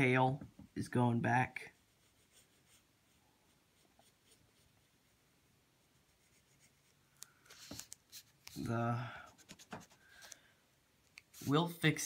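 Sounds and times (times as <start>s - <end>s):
pencil scratching on paper: 1.7s - 4.8s, 5.8s - 7.0s.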